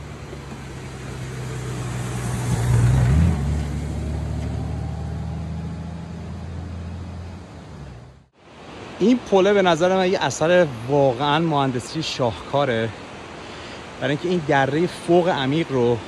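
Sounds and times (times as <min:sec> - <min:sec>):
motorcycle passing by: 0:00.0 - 0:08.2.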